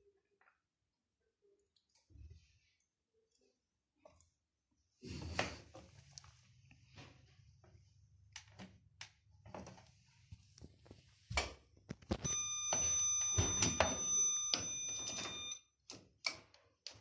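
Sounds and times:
steady electronic beep: 0:12.2 - 0:15.6.

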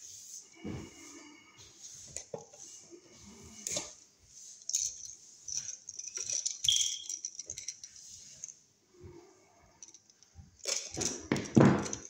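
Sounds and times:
pliers clicking and rattling on wires: 0:09.8 - 0:12.0.

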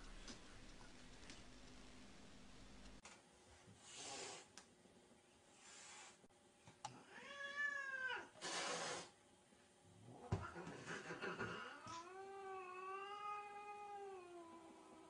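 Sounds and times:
kitten hissing: 0:08.4 - 0:09.2.

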